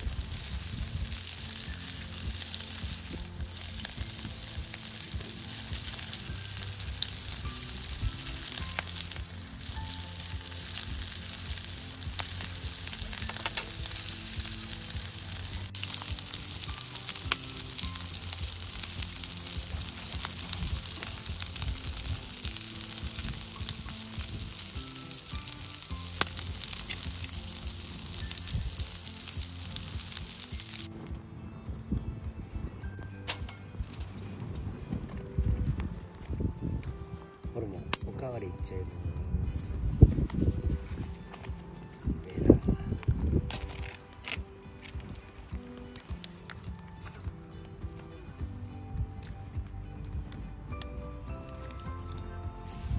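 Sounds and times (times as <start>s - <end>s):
meat sizzling in a frying pan: 0.0s - 30.9s
sharp crackles: 0.0s - 38.3s, 40.1s - 52.9s.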